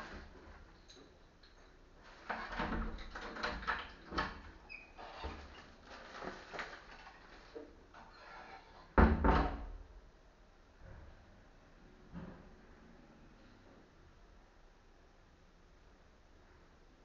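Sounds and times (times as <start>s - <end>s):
kitchen knocks and clatter: 9.0s - 9.8s.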